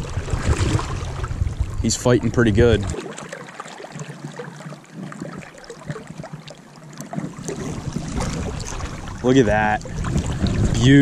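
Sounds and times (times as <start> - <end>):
creek water rippling and lapping: 0.0 - 11.0
small splashes: 2.6 - 11.0.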